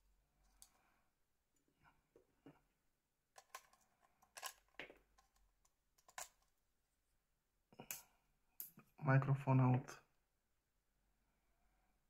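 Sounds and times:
small plastic parts clicking: 3.4 - 6.5.

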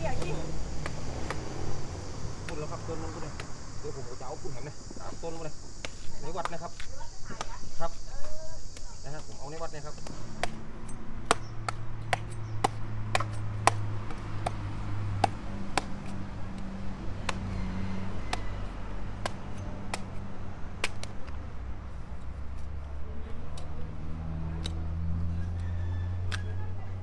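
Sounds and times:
knife chopping fruit: 9.9 - 21.4.

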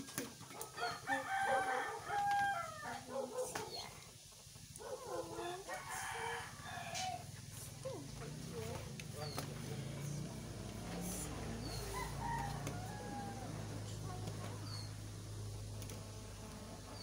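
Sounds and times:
rooster crowing: 0.6 - 3.2, 4.9 - 7.3, 11.6 - 14.0.

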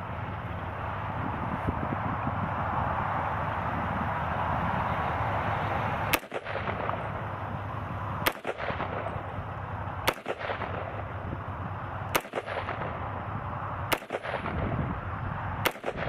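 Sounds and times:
pistol shots: 6.1 - 7.3, 8.2 - 9.4, 10.0 - 11.2, 12.1 - 13.1, 13.9 - 14.7, 15.6 - 16.0.

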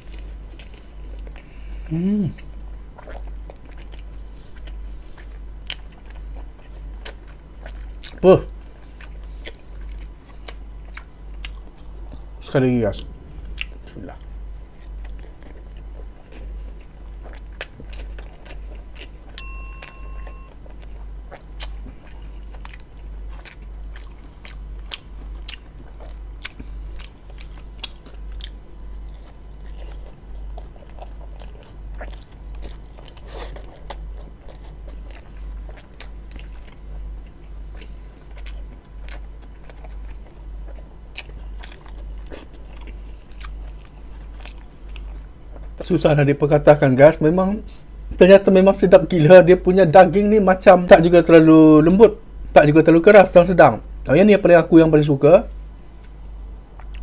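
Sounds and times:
chewing and biting: 0.0 - 1.5, 2.3 - 12.4, 13.4 - 19.3, 20.2 - 45.9, 56.8 - 57.0
sharp clink: 19.4 - 20.5.

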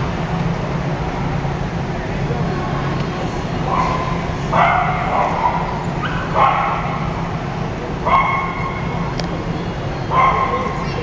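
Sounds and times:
steady low hum: 0.0 - 11.0
dog yipping barks: 3.7 - 7.0, 8.1 - 8.9, 10.1 - 10.8.

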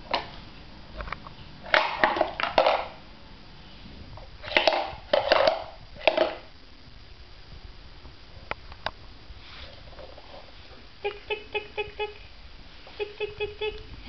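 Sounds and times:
toy blocks knocking and rustling: 4.4 - 6.5.

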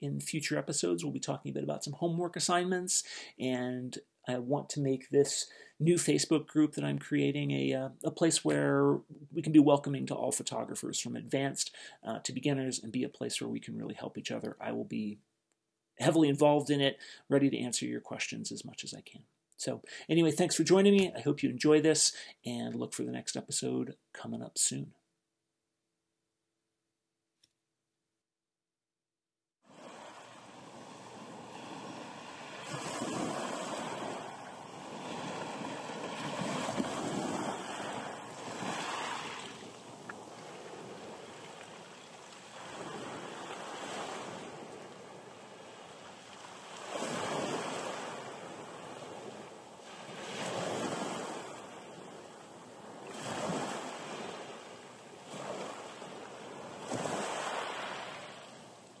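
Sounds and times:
waves washing over pebbles: 29.7 - 52.2, 55.2 - 58.4.

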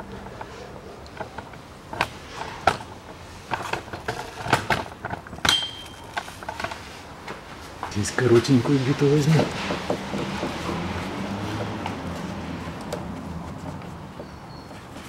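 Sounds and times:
metal tools clinking: 5.4 - 6.6
short metallic ring: 5.5 - 6.2.

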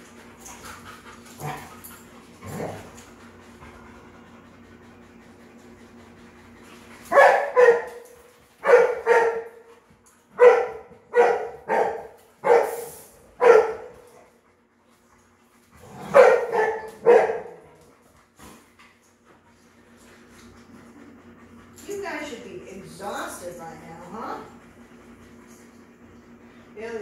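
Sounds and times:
dog barking: 7.1 - 8.0, 8.6 - 9.5, 10.4 - 12.8, 13.4 - 14.0, 16.1 - 17.6.

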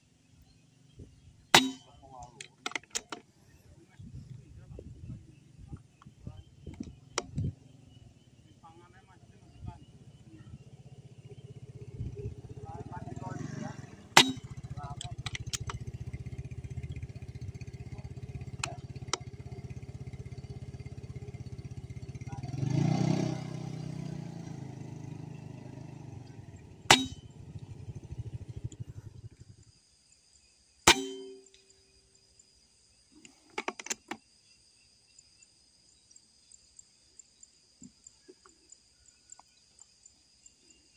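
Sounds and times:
air rifle shots: 1.6 - 2.0, 30.9 - 31.5
metallic ringing clang: 1.6 - 2.1, 14.0 - 20.3, 25.5 - 28.1, 30.9 - 31.7
passing vehicle engine: 7.3 - 29.5
quick clicks: 14.2 - 15.8.

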